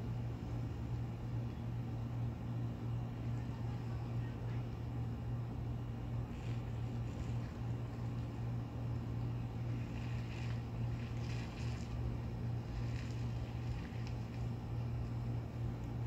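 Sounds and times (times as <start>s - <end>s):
low hum: 0.0s - 16.0s
breeze rustling: 6.3s - 15.5s.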